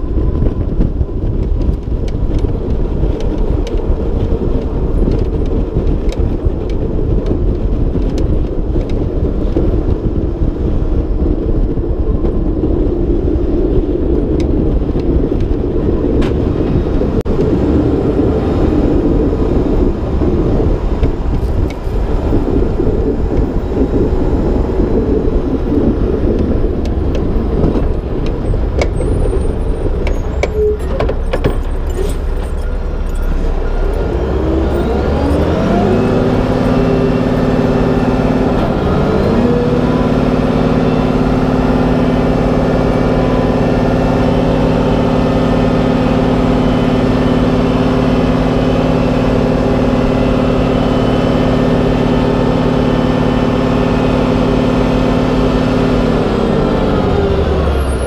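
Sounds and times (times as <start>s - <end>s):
diesel truck engine: 0.0s - 58.0s
plow scraping and knocking: 0.0s - 58.0s.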